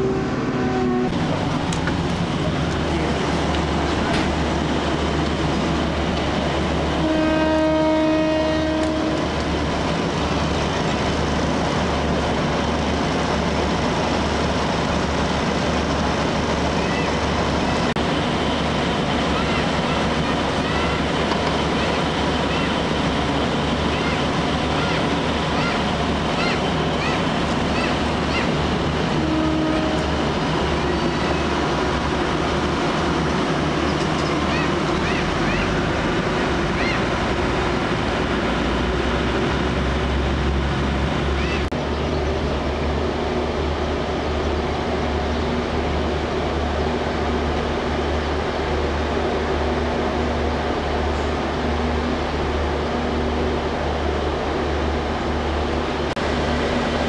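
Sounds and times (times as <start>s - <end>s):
two-tone train horn: 0.0s - 1.2s, 7.0s - 9.3s, 29.1s - 30.4s
diesel railcar engine idling: 0.0s - 57.0s.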